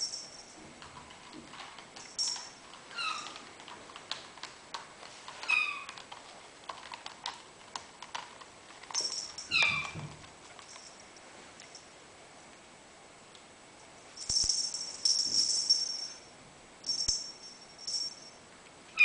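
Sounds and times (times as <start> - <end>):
small bell jingling: 0.0 - 0.6, 2.0 - 2.6, 8.9 - 9.9, 14.2 - 18.4.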